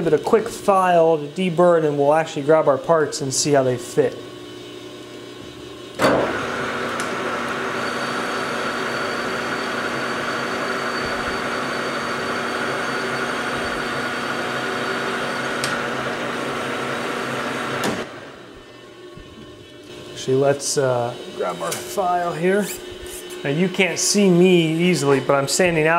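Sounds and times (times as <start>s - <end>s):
metal lathe humming and whining: 0.0s - 25.9s.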